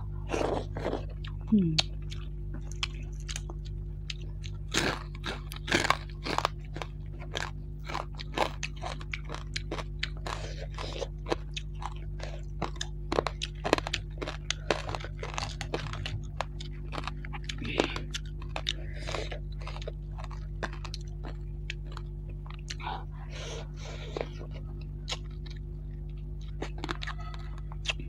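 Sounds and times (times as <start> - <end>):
chewing and crunching food: 0.0 - 28.0
steady low hum: 0.0 - 28.0.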